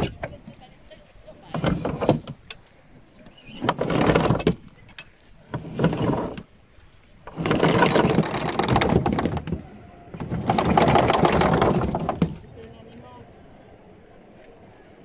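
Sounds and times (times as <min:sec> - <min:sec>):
anchor chain running out: 0:07.3 - 0:12.4.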